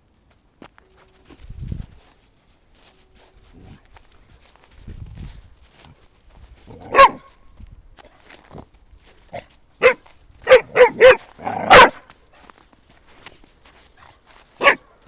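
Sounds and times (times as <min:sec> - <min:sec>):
puppy barking: 0:06.8 - 0:07.4, 0:09.3 - 0:12.1, 0:14.0 - 0:15.0.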